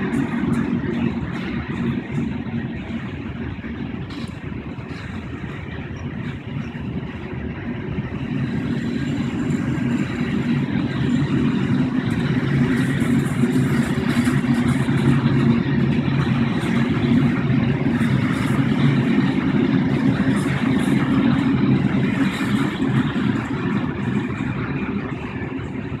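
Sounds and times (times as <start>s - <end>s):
train wheels rumbling on rails: 0.0s - 26.0s.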